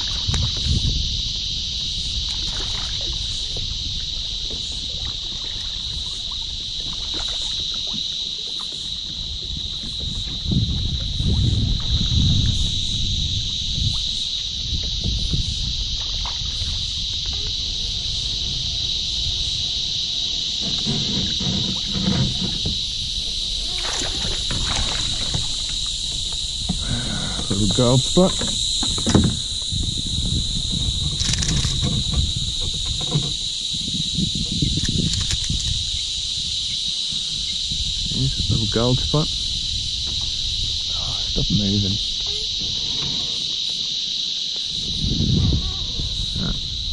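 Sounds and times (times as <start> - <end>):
insects droning: 0.0 - 46.9
low rumbling: 9.1 - 43.4.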